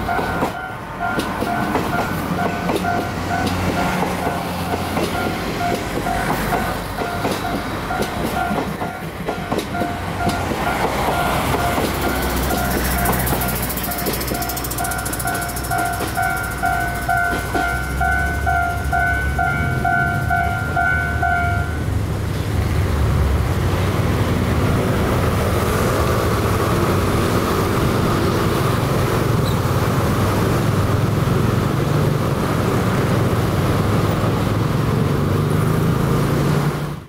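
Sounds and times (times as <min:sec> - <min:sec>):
level-crossing warning bell: 0:00.0 - 0:22.0
passing train rumble: 0:00.0 - 0:37.0
motor scooters pulling away: 0:23.9 - 0:37.0.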